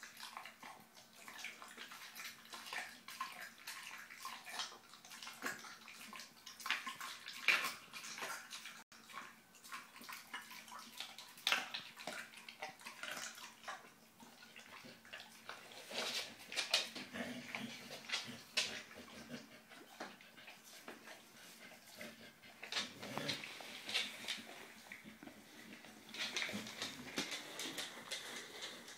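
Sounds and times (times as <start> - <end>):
puppy chewing wetly: 0.0 - 28.9.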